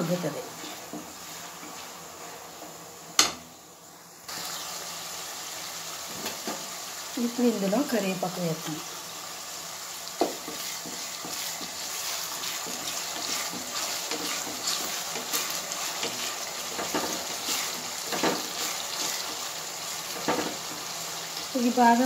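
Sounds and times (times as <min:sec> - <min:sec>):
onions sizzling in hot oil: 0:00.0 - 0:22.0
wooden spatula knocking pan: 0:10.2 - 0:11.8.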